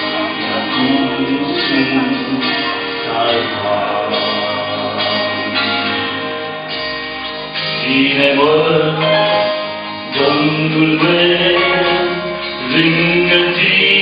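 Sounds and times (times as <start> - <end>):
man singing a hymn: 0.0 - 6.6, 7.6 - 14.0
instrumental accompaniment: 0.0 - 14.0.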